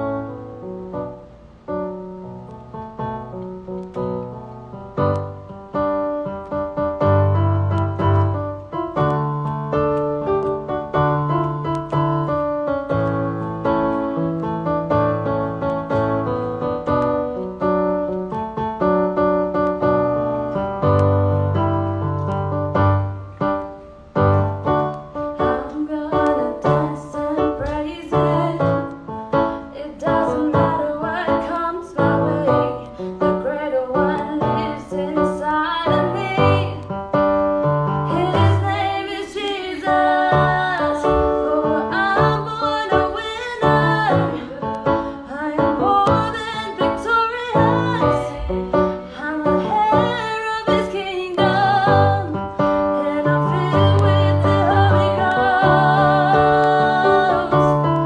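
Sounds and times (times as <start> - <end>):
electronic keyboard chords: 0.0 - 58.0
woman singing: 25.4 - 37.0, 38.1 - 58.0.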